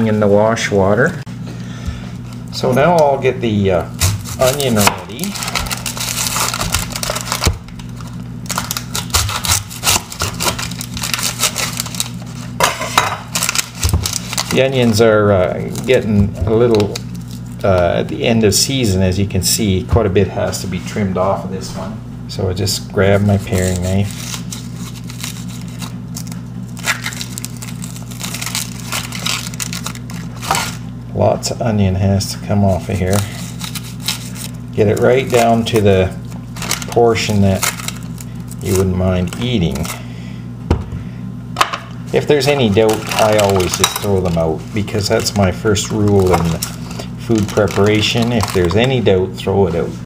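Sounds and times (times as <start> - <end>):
steady low hum: 0.0 - 50.0
onion skin crackling: 3.8 - 18.2, 23.0 - 30.9, 32.6 - 40.0, 42.0 - 49.1
knife cutting onion skin: 4.0 - 14.6.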